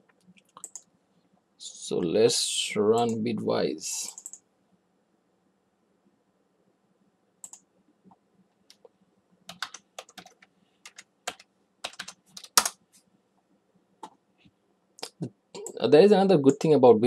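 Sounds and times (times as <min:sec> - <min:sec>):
computer keyboard typing: 0:04.1 - 0:04.4, 0:09.5 - 0:12.8.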